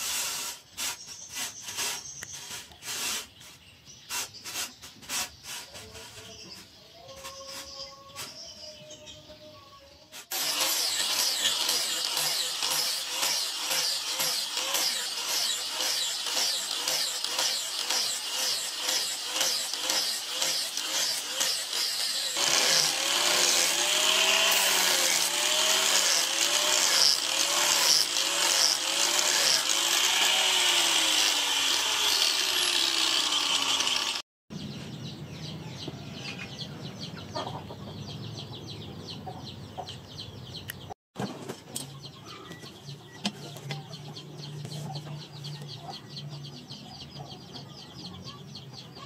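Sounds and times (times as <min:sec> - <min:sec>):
angle grinder grinding steel: 0:00.0 - 0:03.4, 0:10.2 - 0:34.2
chickens clucking: 0:35.9 - 0:49.0.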